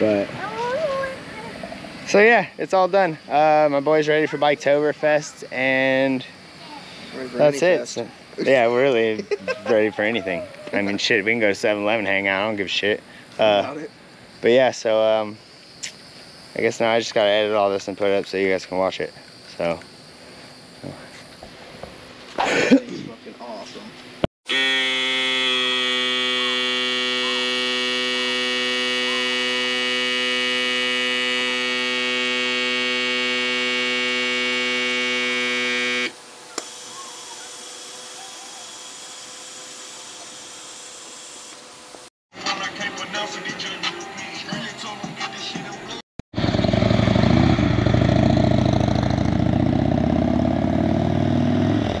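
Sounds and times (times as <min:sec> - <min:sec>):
steady buzzing tone: 0:24.5 - 0:42.1
motorcycle engine running: 0:25.0 - 0:41.1, 0:46.4 - 0:52.0.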